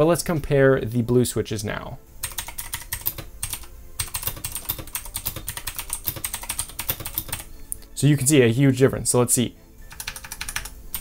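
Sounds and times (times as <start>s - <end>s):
clicky keyboard typing: 2.2s - 7.5s, 9.9s - 11.0s.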